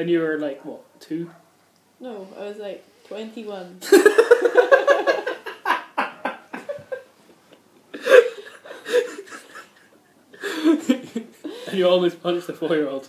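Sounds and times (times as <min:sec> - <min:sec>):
people laughing: 0:03.9 - 0:07.0, 0:08.0 - 0:11.5.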